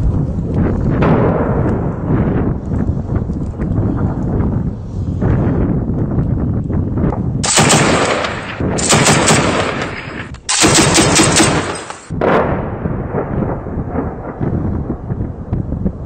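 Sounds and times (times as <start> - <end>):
low rumbling noise: 0.0 - 16.0
heavy machine gun bursts: 7.4 - 12.1.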